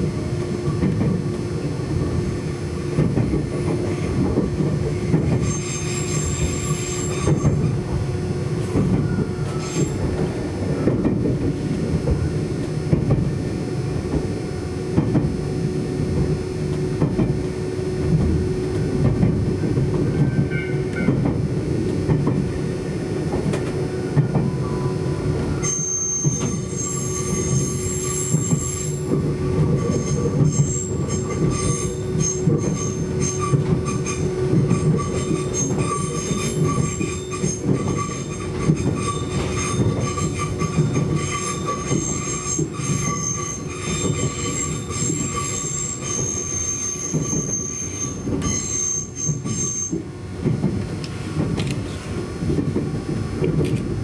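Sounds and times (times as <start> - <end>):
wheels rumbling on rails: 0.0 - 54.0
high-pitched wheel squeal: 5.4 - 7.7, 9.0 - 10.1, 25.6 - 29.1, 29.7 - 50.0.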